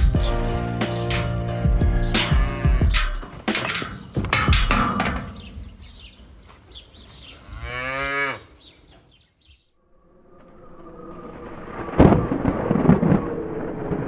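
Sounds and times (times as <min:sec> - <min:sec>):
metal gate latch clanking: 0:00.8 - 0:05.6
cow mooing: 0:02.1 - 0:03.2, 0:07.4 - 0:08.6.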